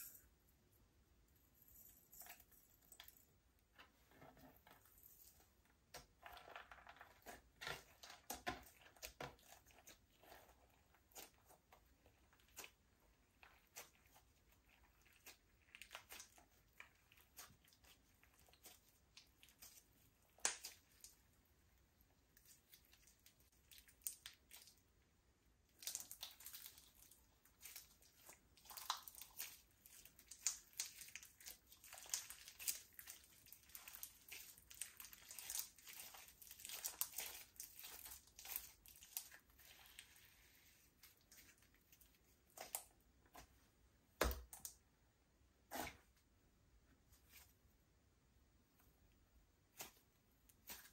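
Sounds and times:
slime clicking and crackling: 25.7s - 39.4s.

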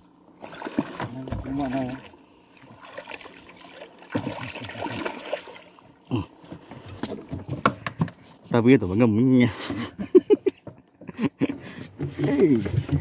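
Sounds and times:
fish thrashing in water: 0.4s - 5.8s
water running off net: 0.4s - 5.8s.

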